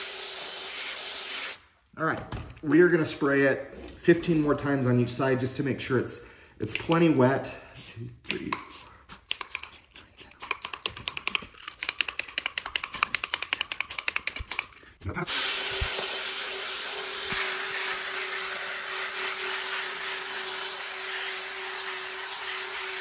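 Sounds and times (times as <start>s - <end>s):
trigger spray bottle spritzing: 8.3s - 14.8s
drill scrub brush whirring: 15.3s - 23.0s.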